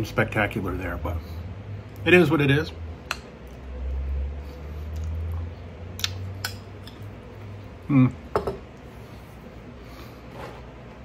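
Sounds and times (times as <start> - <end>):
person humming: 7.9 - 8.2.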